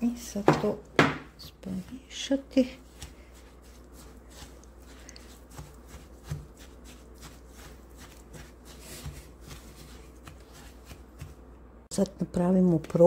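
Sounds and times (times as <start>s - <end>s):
spatula scraping in bowl: 1.5s - 11.4s.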